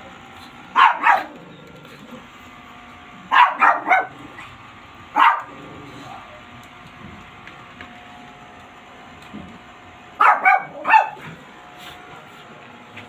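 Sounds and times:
small dog barking: 0:00.7 - 0:01.4, 0:03.3 - 0:04.5, 0:05.1 - 0:05.6, 0:10.2 - 0:11.3.

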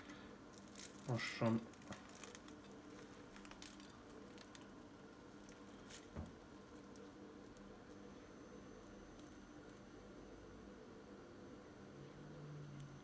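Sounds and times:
pastry crackling as pulled apart: 0:00.0 - 0:08.1
low steady hum: 0:00.0 - 0:13.0.

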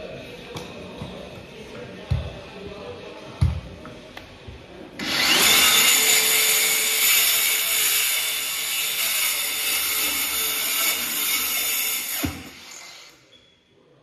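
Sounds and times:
circular saw cutting wood: 0:05.0 - 0:13.2.

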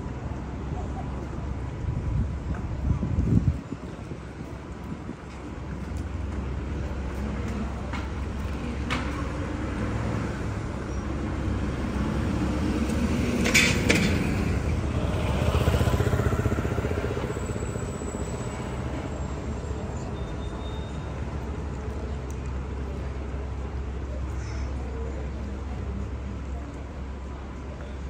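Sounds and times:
traffic rumble: 0:00.0 - 0:28.0
scooter passing: 0:08.4 - 0:20.1.

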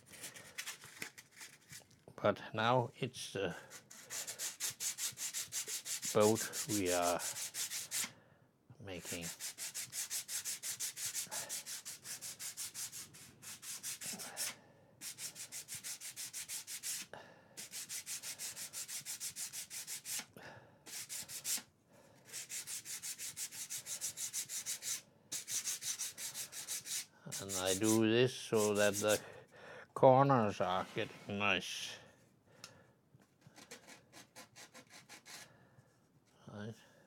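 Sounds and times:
wood sanding on sandpaper: 0:03.7 - 0:08.1, 0:09.0 - 0:20.3, 0:20.9 - 0:21.6, 0:22.3 - 0:29.2.

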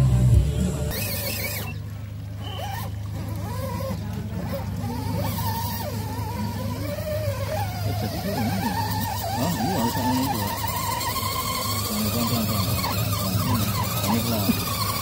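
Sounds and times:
electric motor whining: 0:00.0 - 0:15.0
low hum: 0:00.0 - 0:15.0.

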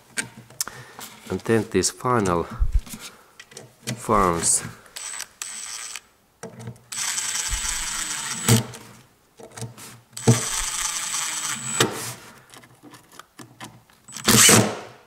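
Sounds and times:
tape measure blade whirring: 0:05.0 - 0:06.1, 0:06.9 - 0:08.8, 0:10.2 - 0:12.2.

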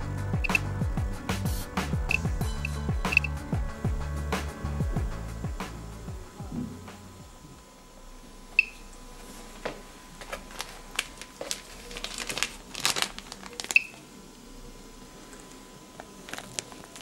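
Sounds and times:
geiger counter beeps: 0:00.4 - 0:00.7, 0:02.1 - 0:03.4, 0:08.6 - 0:08.8
faint crinkling and rustling: 0:09.1 - 0:14.1, 0:15.2 - 0:17.0.

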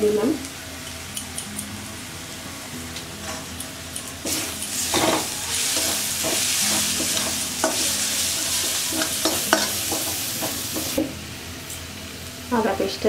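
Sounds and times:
spices and onion sizzling in oil: 0:00.0 - 0:13.0
metal spatula scraping pan: 0:04.2 - 0:11.0
spatula knocking on pan: 0:09.0 - 0:11.1.

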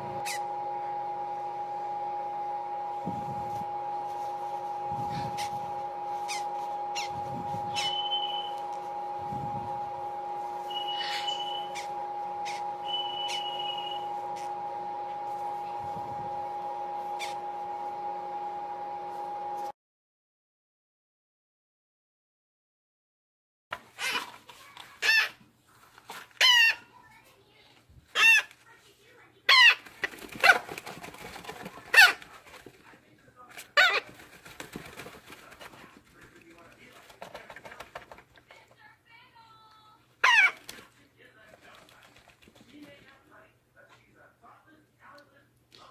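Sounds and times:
electrical hum: 0:00.0 - 0:19.7
parrot chick peeping: 0:00.1 - 0:00.6, 0:05.0 - 0:08.7, 0:10.6 - 0:14.5, 0:17.2 - 0:17.4, 0:26.4 - 0:26.9, 0:28.1 - 0:28.6, 0:29.5 - 0:32.3, 0:40.2 - 0:40.8
parrot chick raspy squawks: 0:23.9 - 0:24.3, 0:25.0 - 0:25.4, 0:26.4 - 0:26.9, 0:28.1 - 0:28.6, 0:29.5 - 0:30.6, 0:40.2 - 0:40.7.

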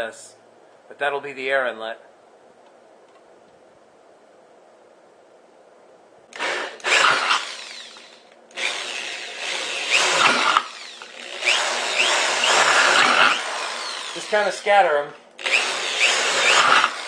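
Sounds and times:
power drill boring through steel: 0:06.4 - 0:14.8, 0:15.4 - 0:17.0.

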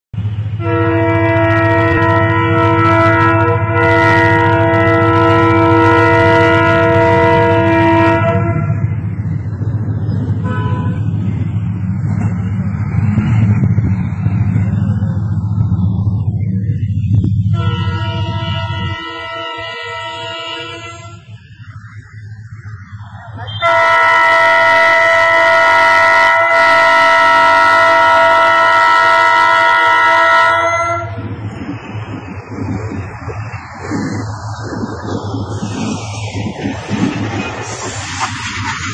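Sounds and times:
low engine rumble: 0:00.2 - 0:38.9
locomotive horn blast: 0:00.6 - 0:08.9, 0:10.4 - 0:11.1, 0:17.5 - 0:21.4, 0:23.5 - 0:31.2.

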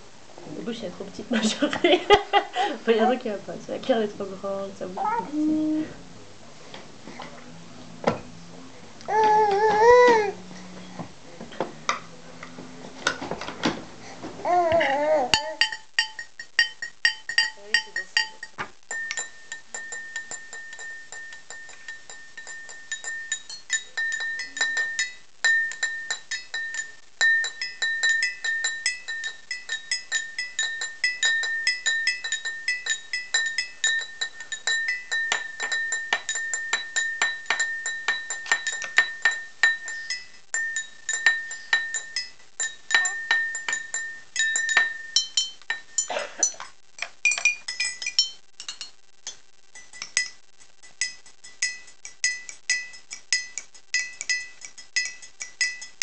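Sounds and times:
spoon banging on bowl: 0:14.8 - 0:56.0.

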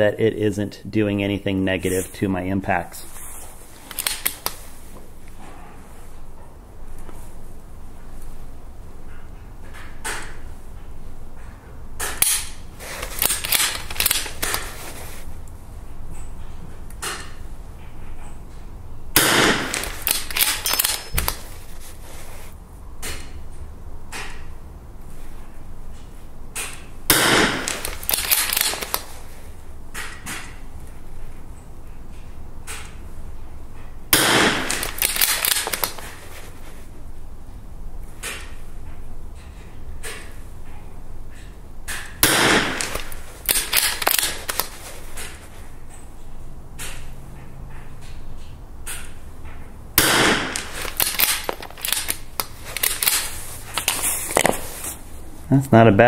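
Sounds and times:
rifle shots: 0:19.2 - 0:21.4, 0:27.1 - 0:29.0, 0:34.1 - 0:36.0, 0:42.2 - 0:44.8, 0:50.0 - 0:53.4
sharp clicks: 0:19.2 - 0:21.4, 0:26.6 - 0:29.2, 0:34.2 - 0:36.2, 0:41.9 - 0:45.4, 0:50.0 - 0:54.5.

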